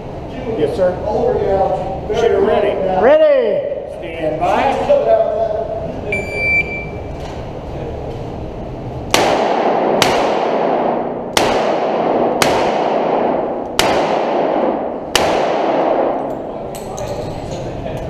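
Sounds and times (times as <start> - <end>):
shot timer beep: 6.2 - 7.0
revolver gunshots: 9.1 - 16.3.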